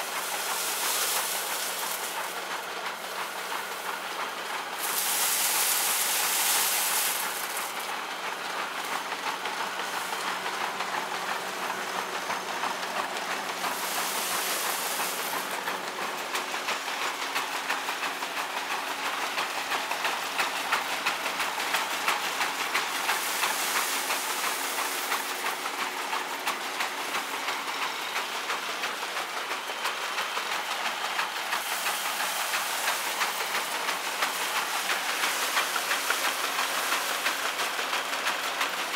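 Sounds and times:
rushing hiss of straw bundles: 0.0 - 8.1, 13.4 - 18.4, 20.0 - 28.0, 30.4 - 38.9
threshing machine drum clattering: 0.0 - 38.9.

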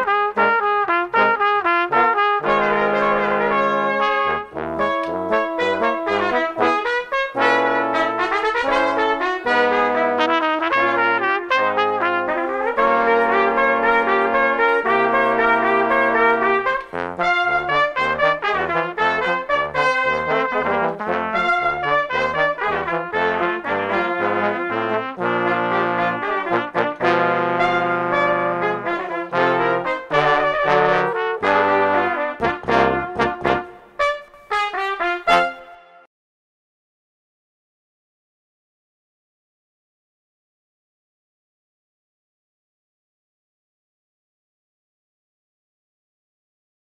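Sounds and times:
brass ensemble playing: 0.0 - 36.1.

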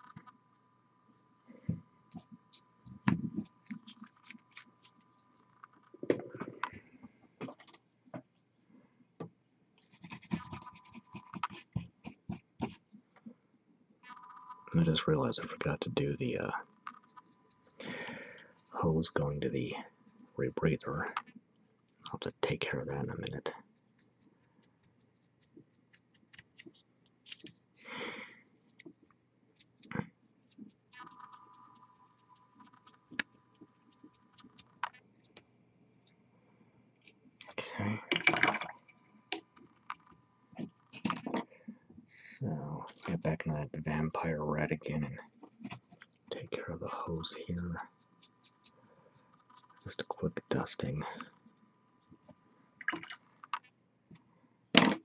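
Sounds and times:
rapid scratching and crackling: 45.1 - 52.2.

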